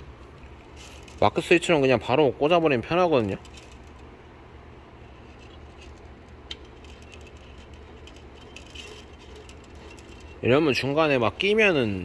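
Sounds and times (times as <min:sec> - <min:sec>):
steady low hum: 0:00.0 - 0:12.0
filament clicking and rubbing in tube: 0:05.0 - 0:10.8.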